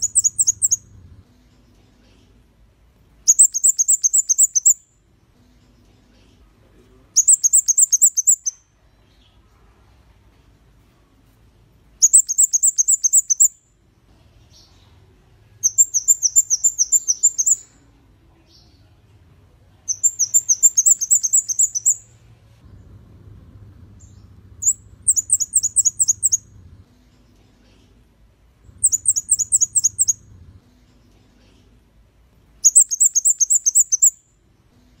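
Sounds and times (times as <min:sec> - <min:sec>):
bird chirping high and sharp: 0:00.0 - 0:00.9, 0:03.3 - 0:04.9, 0:07.2 - 0:08.6, 0:12.0 - 0:13.6, 0:15.6 - 0:17.7, 0:19.9 - 0:22.1, 0:24.0 - 0:26.6, 0:28.7 - 0:30.3, 0:32.6 - 0:34.2.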